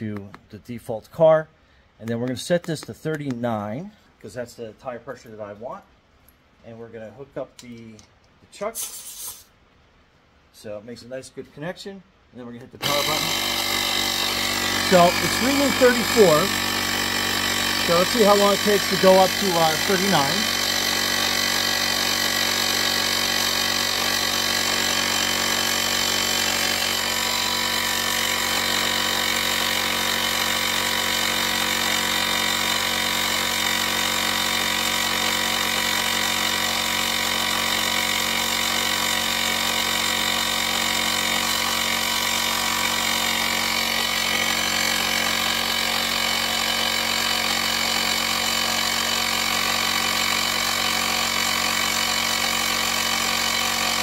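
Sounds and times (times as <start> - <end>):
electric air compressor running: 12.8 - 54.0.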